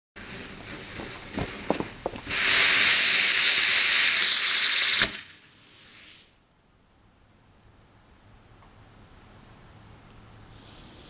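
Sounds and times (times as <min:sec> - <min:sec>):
firework crackles: 0:00.2 - 0:06.4, 0:10.5 - 0:11.0
firework sparks hissing: 0:00.2 - 0:06.4, 0:10.5 - 0:11.0.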